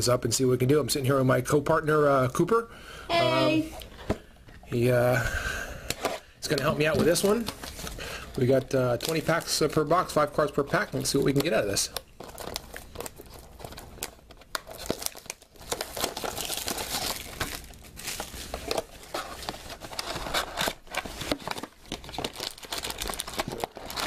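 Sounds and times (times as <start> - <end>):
plastic wrap crinkling and tearing: 6.4 - 24.0.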